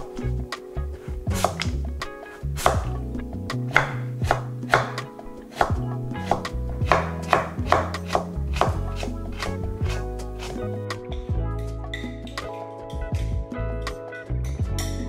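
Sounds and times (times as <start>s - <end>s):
knife chopping vegetables on board: 1.3s - 1.8s, 2.6s - 3.0s, 3.7s - 10.7s.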